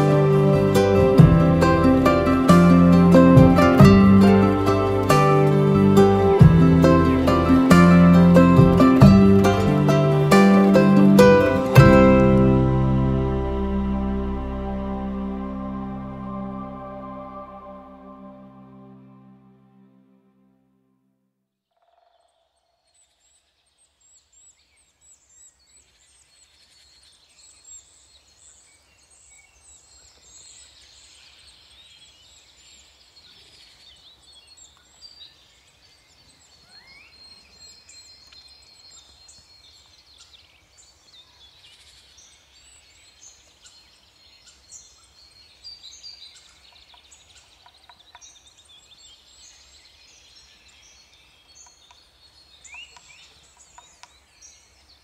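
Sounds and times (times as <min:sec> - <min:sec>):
faint low rumble: 0:11.7 - 0:20.3.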